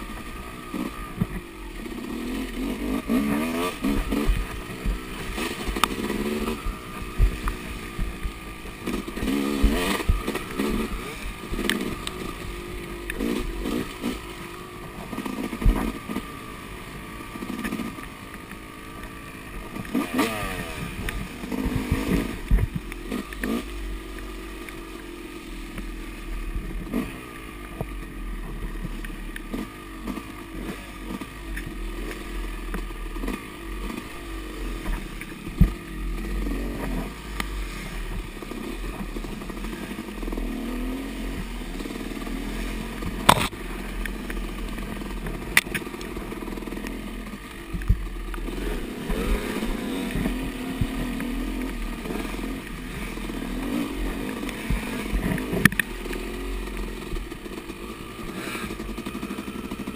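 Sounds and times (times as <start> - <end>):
dirt bike engine revving: 0.0 - 59.9.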